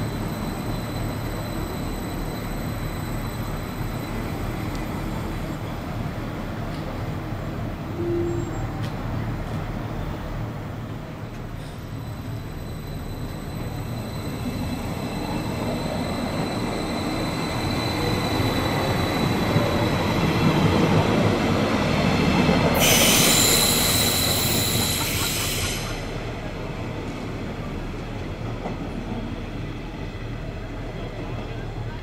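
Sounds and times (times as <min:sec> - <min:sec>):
train rumbling past: 0:00.0 - 0:32.0
high-pitched squeal: 0:22.8 - 0:26.2.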